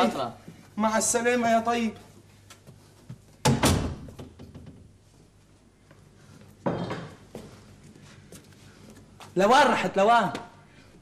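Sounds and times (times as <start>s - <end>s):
door slamming: 3.4s - 4.8s.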